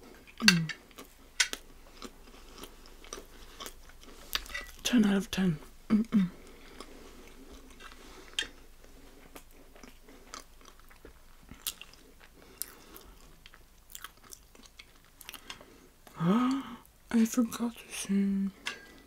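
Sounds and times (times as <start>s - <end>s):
person chewing soft cake: 0.0s - 4.9s, 6.0s - 16.9s.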